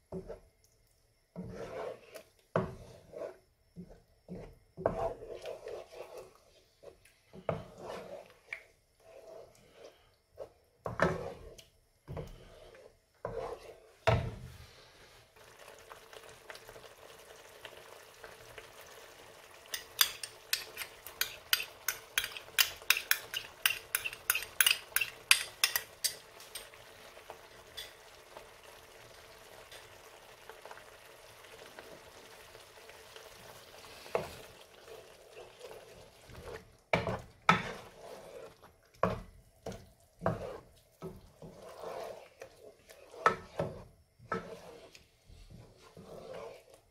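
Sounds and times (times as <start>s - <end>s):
wooden spoon stirring sauce in pan: 0.1s - 0.5s, 1.3s - 46.9s
sauce simmering and popping: 15.3s - 45.0s.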